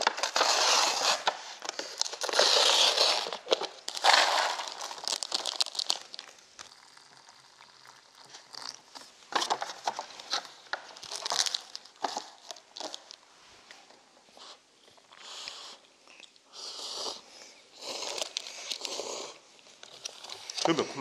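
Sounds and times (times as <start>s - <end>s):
plastic and paper crinkling: 0.0s - 6.9s, 8.2s - 13.8s.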